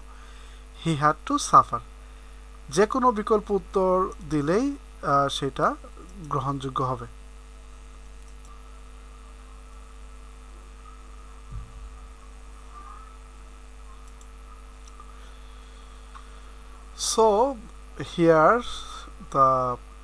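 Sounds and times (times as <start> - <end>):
electrical mains hum: 0.0 - 20.0
faint high whine: 0.0 - 20.0
soft low thump: 11.5 - 11.9.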